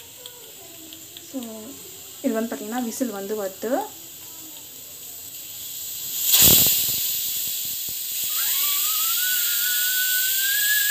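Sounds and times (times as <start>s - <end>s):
pressure cooker hissing steam: 0.0s - 10.9s
sharp burst of steam: 2.2s - 10.9s
pressure cooker whistle: 6.3s - 10.9s.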